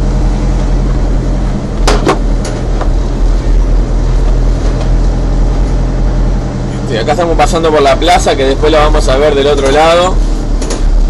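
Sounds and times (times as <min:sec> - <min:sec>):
truck engine and road rumble: 0:00.0 - 0:11.0
sharp knocks: 0:01.8 - 0:03.0.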